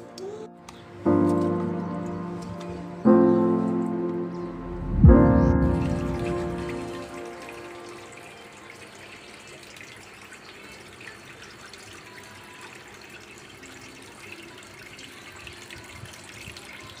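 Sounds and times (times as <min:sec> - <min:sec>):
fountain water trickling and splashing: 0:05.7 - 0:17.0.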